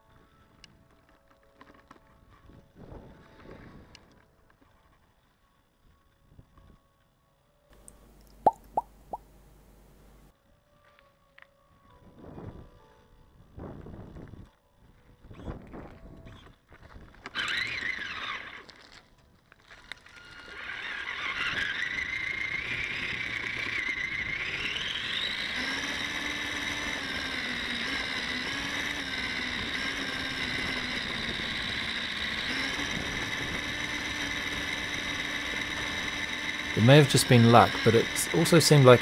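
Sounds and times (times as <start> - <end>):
electric motor whining: 15.3 - 39.0
tyres on gravel: 16.8 - 39.0.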